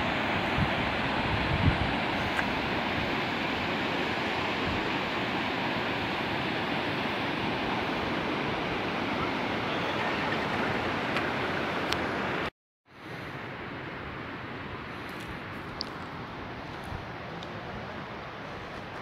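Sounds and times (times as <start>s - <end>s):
river rapids rushing over rocks: 0.0s - 12.5s.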